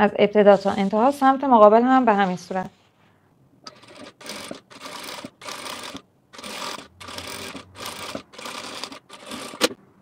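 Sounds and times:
sewing machine stitching: 3.7 - 9.8.

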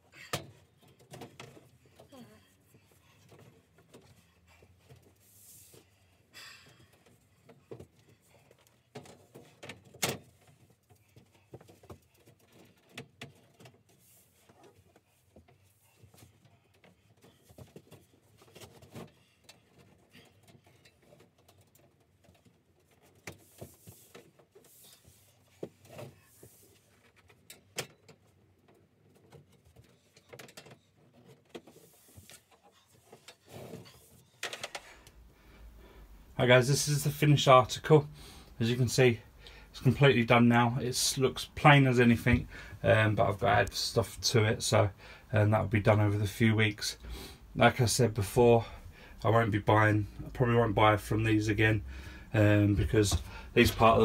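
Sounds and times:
knocks and clicks of shelving: 52.7 - 54.0.

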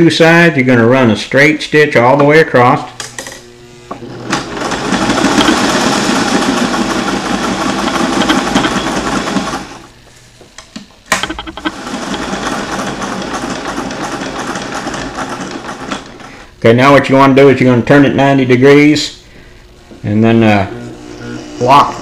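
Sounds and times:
sewing machine running: 3.9 - 9.9, 11.2 - 16.4, 20.6 - 22.0.

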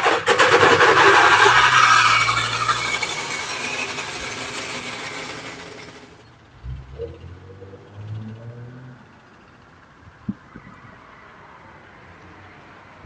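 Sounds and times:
metal rattling over pavement: 0.0 - 6.3.

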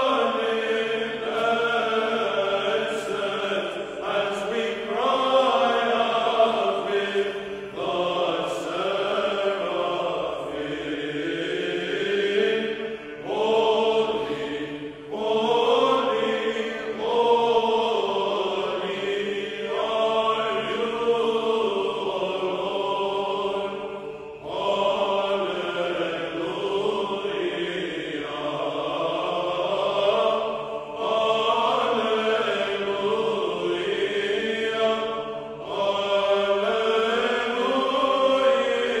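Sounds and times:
voices singing a chant: 0.0 - 39.0.

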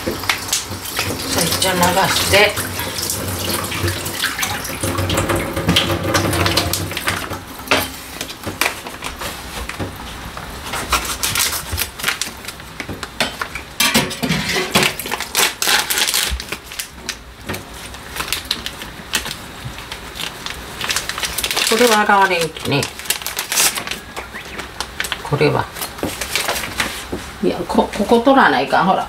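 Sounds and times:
water running from a tap: 0.0 - 7.7
dishes clinking at a sink: 3.2 - 8.0, 13.2 - 15.0.

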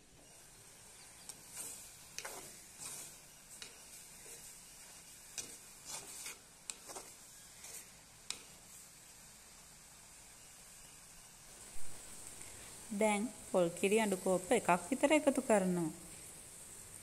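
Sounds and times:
faint steady hiss: 0.0 - 17.0
spoon scraping clay pot: 1.0 - 8.4.

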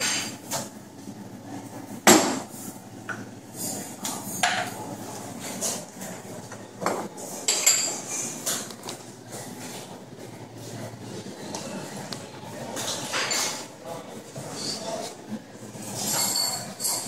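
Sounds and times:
metal jugs and glasses clinking: 12.7 - 13.7, 15.7 - 17.0.

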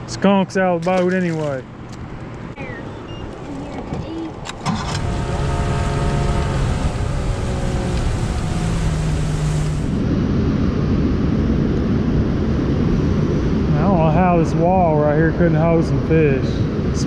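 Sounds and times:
wind: 0.0 - 17.0
outboard motor running: 4.6 - 10.0
rushing water: 4.7 - 10.0.

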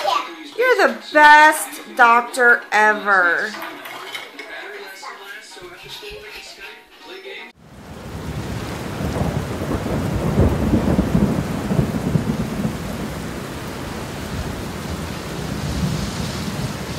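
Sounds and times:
steady rain: 7.6 - 16.9
thunder rumbling: 7.6 - 16.9.

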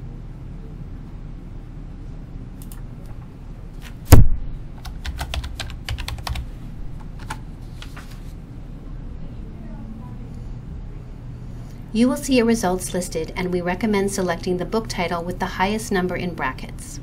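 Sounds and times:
computer keyboard typing: 4.8 - 7.9.

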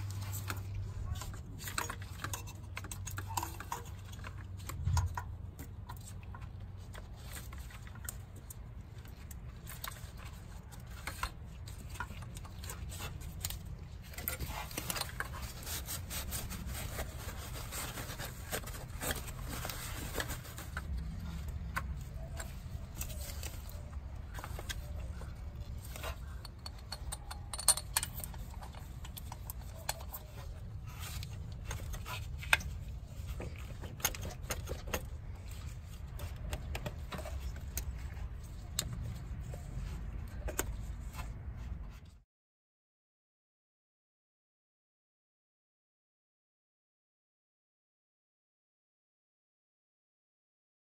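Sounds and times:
metallic clinks and taps: 26.4 - 30.0.

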